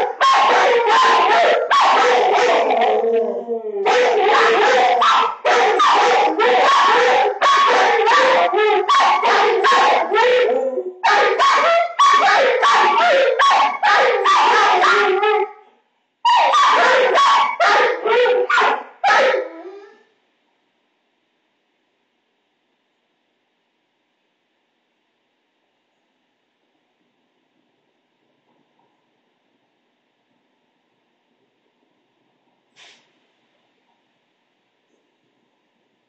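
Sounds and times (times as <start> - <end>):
dog barking and whining: 0.0 - 20.1.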